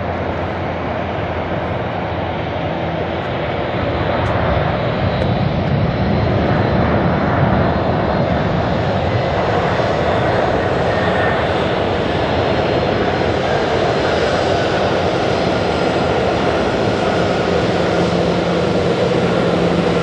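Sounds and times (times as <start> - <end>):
loud jet engine noise: 0.0 - 20.0.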